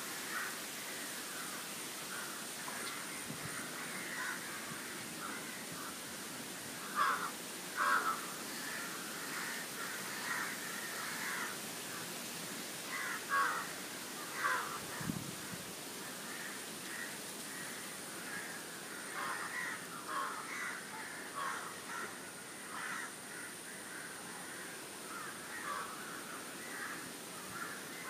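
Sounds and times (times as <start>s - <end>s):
steady hiss: 0.0s - 28.0s
crows cawing: 0.1s - 0.6s, 1.3s - 6.0s, 6.8s - 12.0s, 12.9s - 15.1s, 16.1s - 28.0s.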